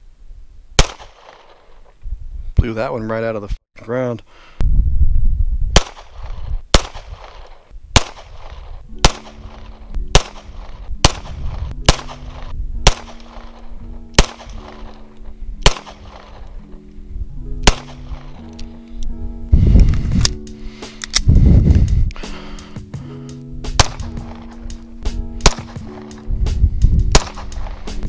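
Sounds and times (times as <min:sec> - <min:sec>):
pistol shots: 0:00.8 - 0:01.6, 0:05.8 - 0:15.0, 0:15.6 - 0:16.5, 0:17.6 - 0:18.4, 0:23.7 - 0:24.5, 0:25.4 - 0:26.1, 0:27.1 - 0:27.7
background music: 0:08.0 - 0:28.0.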